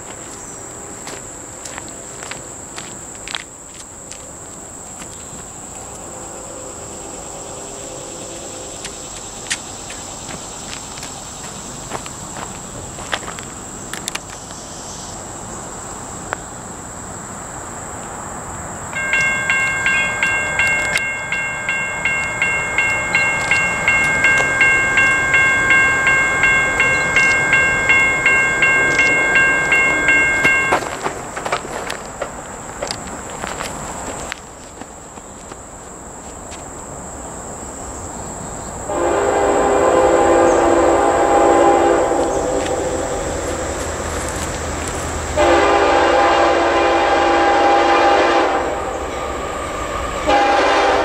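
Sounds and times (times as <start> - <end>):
railroad crossing bell dinging: 18.9 - 31.4.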